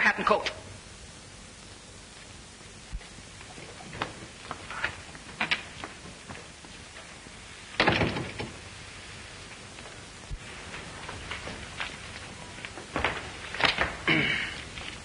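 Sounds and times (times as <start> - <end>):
film soundtrack hiss: 0.0 - 15.0
door shutting: 7.8 - 8.6.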